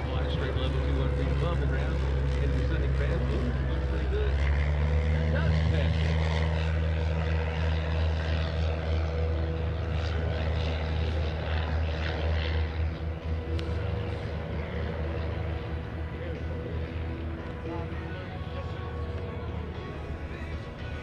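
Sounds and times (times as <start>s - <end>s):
propeller airplane droning: 0.0s - 21.0s.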